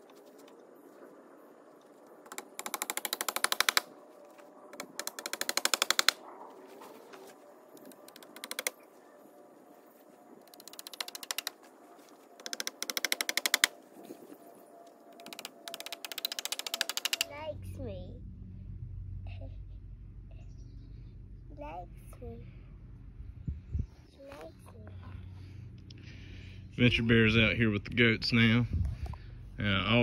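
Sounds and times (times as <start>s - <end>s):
bursts of rapid rattling clicks: 2.3s - 3.9s, 4.8s - 6.2s, 15.2s - 17.3s.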